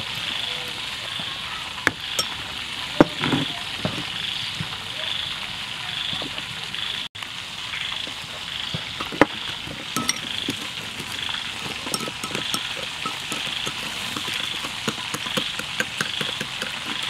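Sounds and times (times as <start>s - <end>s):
spoon clinking on glass: 2.2s - 2.4s, 9.9s - 17.0s
metal spoon scraping glass bowl: 9.8s - 17.0s.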